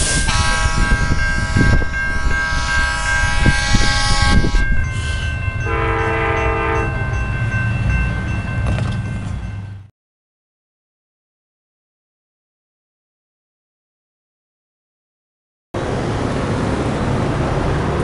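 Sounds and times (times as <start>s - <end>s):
train horn: 0.0s - 7.3s
crossing signal bell ringing: 0.0s - 9.9s.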